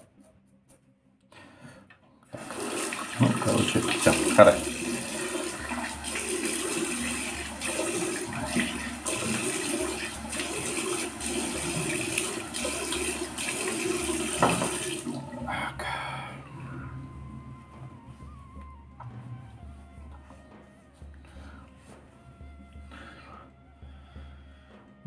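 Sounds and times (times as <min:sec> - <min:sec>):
tap water running into sink: 0:02.4 - 0:15.6.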